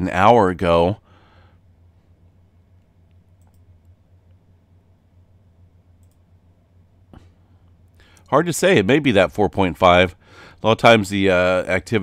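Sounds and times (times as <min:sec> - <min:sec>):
low steady hum: 0:00.0 - 0:12.0
computer mouse clicks: 0:02.8 - 0:04.0, 0:06.0 - 0:06.2.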